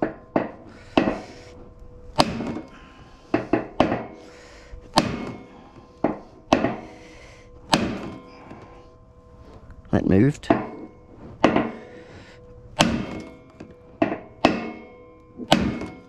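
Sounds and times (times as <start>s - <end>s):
hammer striking metal: 0.0s - 1.5s, 2.1s - 7.0s, 7.7s - 8.6s, 10.4s - 12.1s, 12.7s - 16.0s.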